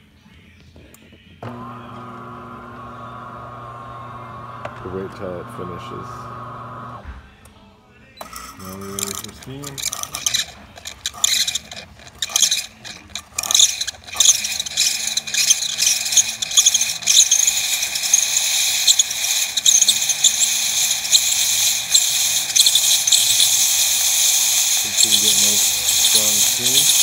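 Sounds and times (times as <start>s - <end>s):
espresso machine steam wand hissing: 1.4s - 7.0s, 8.2s - 27.0s.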